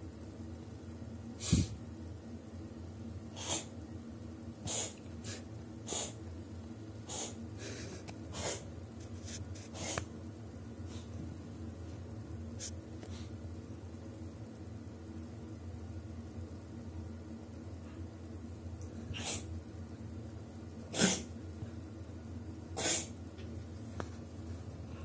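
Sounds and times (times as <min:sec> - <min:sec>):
cat sneezing and snorting: 0:03.3 - 0:03.7, 0:04.6 - 0:06.2, 0:07.0 - 0:08.7, 0:09.7 - 0:10.1, 0:19.0 - 0:19.5, 0:20.9 - 0:21.3, 0:22.8 - 0:23.2.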